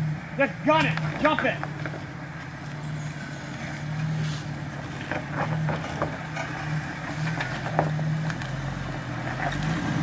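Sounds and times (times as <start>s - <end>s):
engine revving under throttle: 5.3s - 10.0s.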